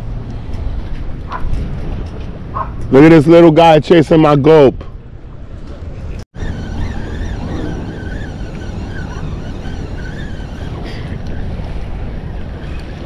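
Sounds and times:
wind buffeting microphone: 0.0s - 13.0s
faint wavering whine: 6.4s - 13.0s.

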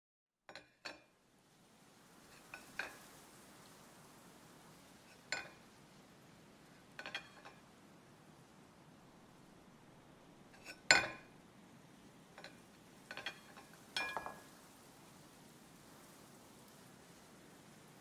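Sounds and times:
dishes clinking on a tabletop: 0.5s - 1.1s, 2.4s - 3.0s, 5.1s - 5.6s, 7.0s - 7.6s, 10.6s - 11.3s, 12.4s - 14.5s
plate set down: 5.3s - 5.6s, 7.0s - 7.6s, 10.6s - 11.3s, 12.4s - 14.5s.

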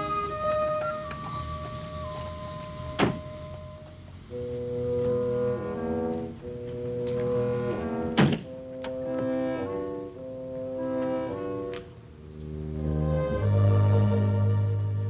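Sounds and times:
music of held chords: 0.0s - 15.0s
car door slamming: 3.0s - 3.3s, 8.2s - 8.4s.

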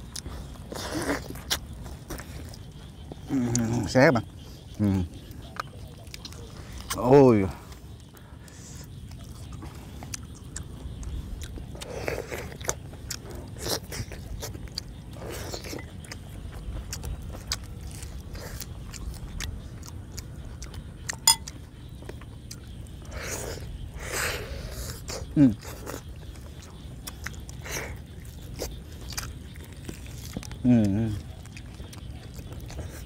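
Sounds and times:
chewing and biting meat: 0.0s - 7.1s, 7.8s - 33.0s
mouth clicks: 0.0s - 7.1s.

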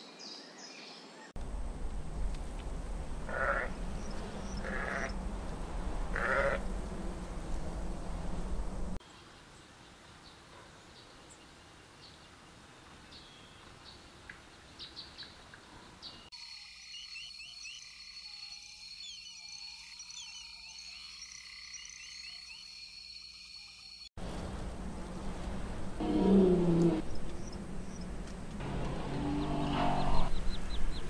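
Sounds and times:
low swooping calls: 1.5s - 9.0s, 24.5s - 31.0s.

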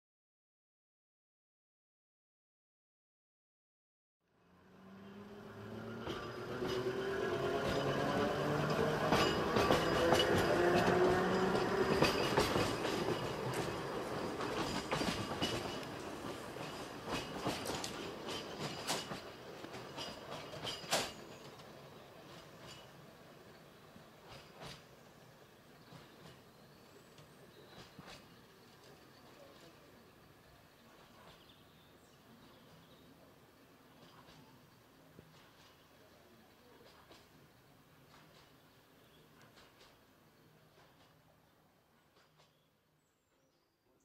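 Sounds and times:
tram motor whine: 4.4s - 18.8s
wheels clicking over rail joints: 5.8s - 25.0s, 36.8s - 38.8s.

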